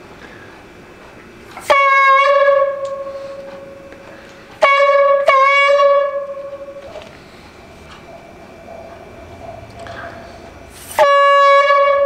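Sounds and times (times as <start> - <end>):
balloon horn honking: 1.6 - 3.8, 4.6 - 6.8, 10.9 - 12.0.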